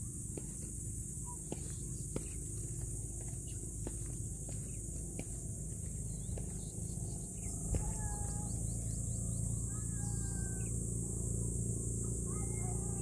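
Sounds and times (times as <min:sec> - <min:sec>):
footsteps on concrete steps: 0:00.0 - 0:06.9, 0:07.6 - 0:08.9
high insect drone: 0:00.0 - 0:13.0
low rumble: 0:04.8 - 0:12.9.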